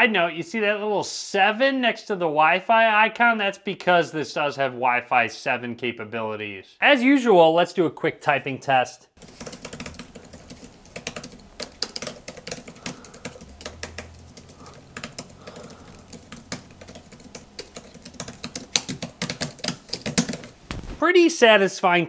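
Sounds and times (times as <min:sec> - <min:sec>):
keyboard keystrokes clacking: 0:09.2 - 0:20.9.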